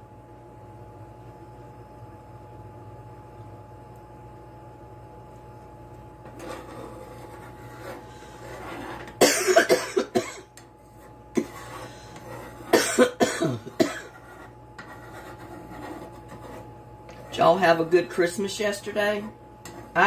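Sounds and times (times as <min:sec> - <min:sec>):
woman coughing: 0:09.2 - 0:10.5, 0:12.7 - 0:14.2.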